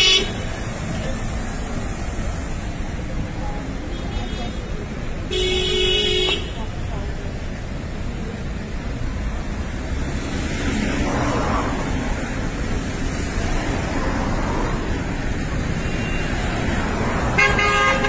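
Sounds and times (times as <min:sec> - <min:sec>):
car horn: 0:00.0 - 0:00.5, 0:03.9 - 0:06.7, 0:17.2 - 0:18.0
traffic rumble of cars: 0:00.0 - 0:18.0.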